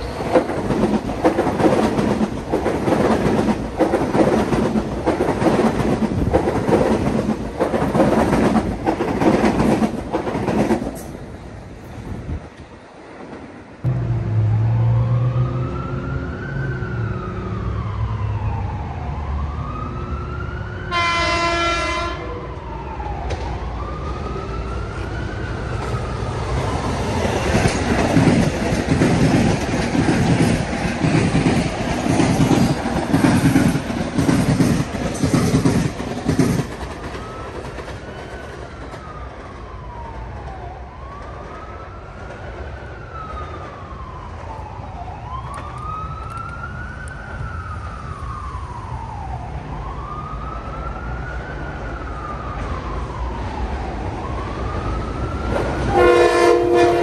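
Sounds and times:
train wheels clattering: 0.0 - 11.2, 27.2 - 39.0
siren wailing: 13.9 - 27.6, 37.0 - 57.0
train horn: 20.9 - 22.6, 55.9 - 57.0.

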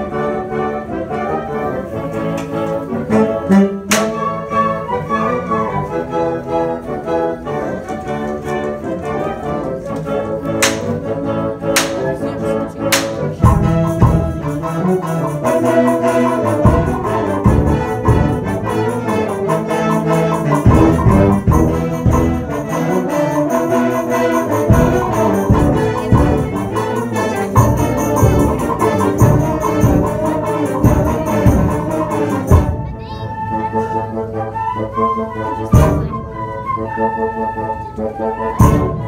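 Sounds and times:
brass band playing chords: 0.0 - 39.0
low steady drum beat: 12.9 - 14.7, 24.6 - 32.8.

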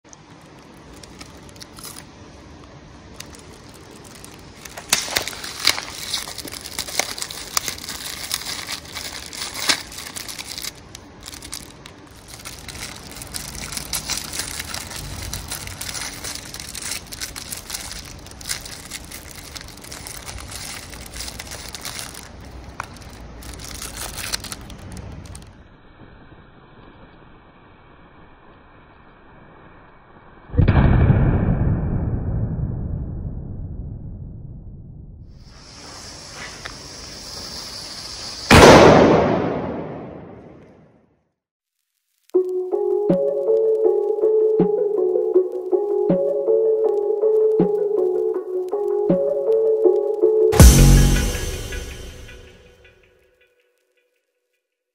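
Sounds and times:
plastic wrapping crinkling and tearing: 0.1 - 25.6.

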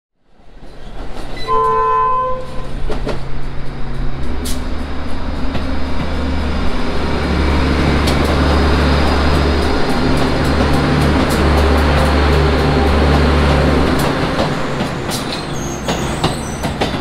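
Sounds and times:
train rumbling on track: 0.2 - 17.0
train horn two-note chord: 1.5 - 2.6
wheels clicking on rail: 2.4 - 17.0.

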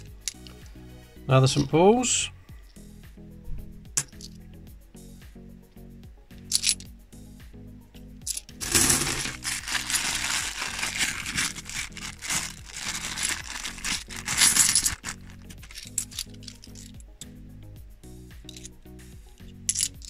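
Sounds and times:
background music: 0.0 - 20.0
coins clinking: 6.5 - 6.9, 8.2 - 17.0, 19.7 - 20.0
plastic bag crinkling: 8.6 - 16.6.

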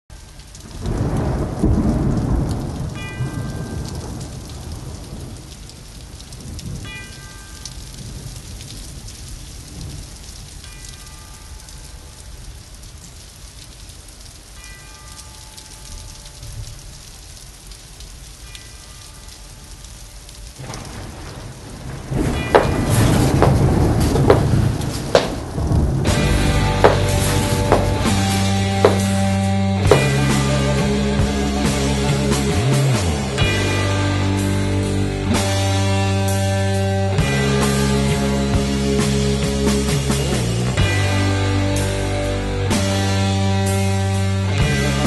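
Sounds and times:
steady rain: 0.1 - 45.0
thunder rumble: 0.2 - 10.6, 20.5 - 42.8.

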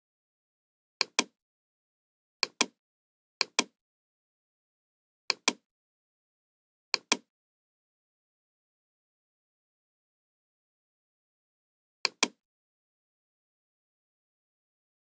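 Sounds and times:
computer mouse button clicking: 1.0 - 1.4, 2.4 - 2.8, 3.4 - 3.8, 5.3 - 5.6, 7.0 - 7.3, 12.1 - 12.4.

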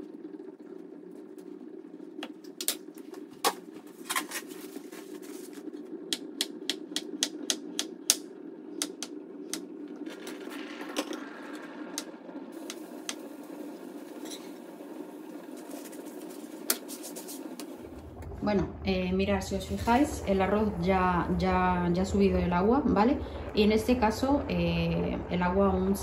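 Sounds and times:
low hum: 0.0 - 26.0.

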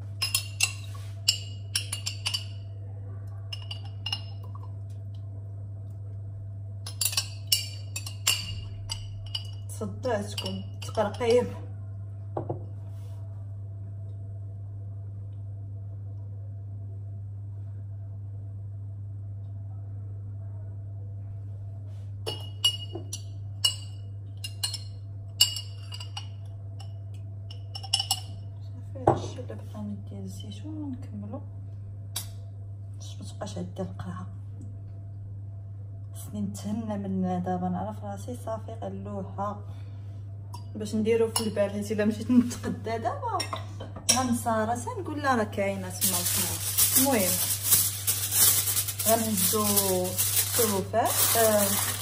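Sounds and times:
low electrical hum: 0.0 - 52.0
metal spoon clinking on glass: 0.2 - 2.6, 3.5 - 4.6, 6.9 - 9.7, 10.3 - 11.4, 22.3 - 28.4.

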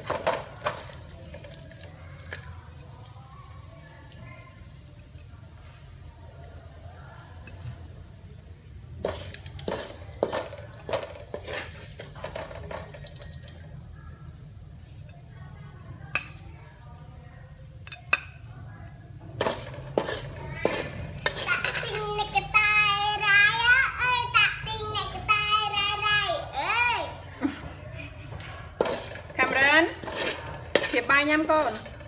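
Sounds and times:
metal spatula scraping a wok: 8.9 - 13.6, 19.4 - 22.6, 27.9 - 32.0
child's voice: 20.4 - 27.2.

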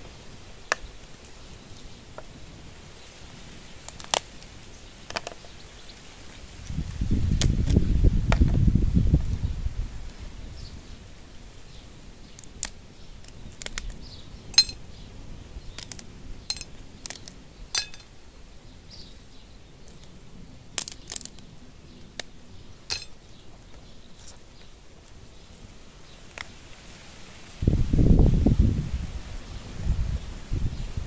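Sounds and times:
kitchenware clinking: 14.6 - 14.8, 16.5 - 16.7, 17.7 - 18.1, 22.9 - 23.1.

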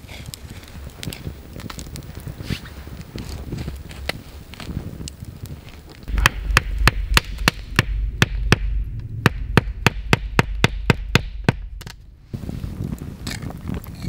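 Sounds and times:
low rumble: 6.0 - 12.8
sharp knocks: 6.1 - 12.0.

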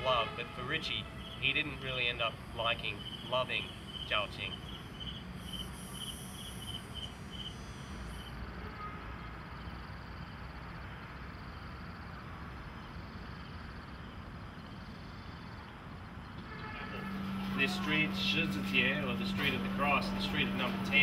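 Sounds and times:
thin high buzz: 0.0 - 8.4, 16.5 - 21.0
insects chirping: 0.0 - 21.0
outdoor background noise: 0.0 - 21.0
faint low hum: 9.7 - 21.0.

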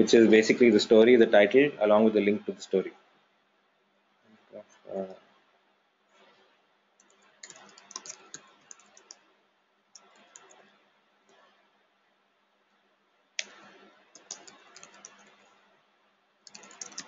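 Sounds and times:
keyboard key clicks: 7.0 - 9.2, 16.5 - 17.0.

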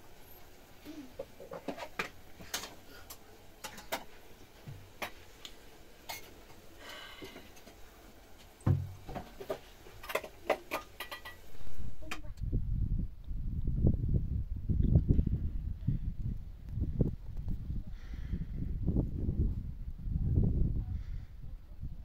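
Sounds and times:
heavy thump: 8.6 - 9.3.

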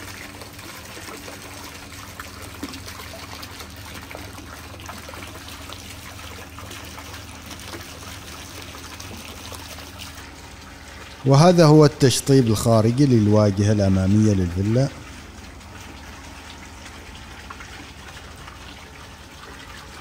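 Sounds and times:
fountain trickling and splashing: 0.0 - 20.0.

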